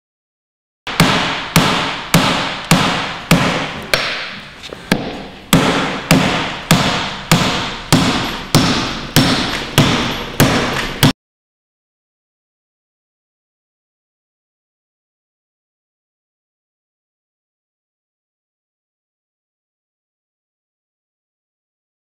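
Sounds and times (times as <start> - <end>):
hard blows on a door: 0.9 - 11.2.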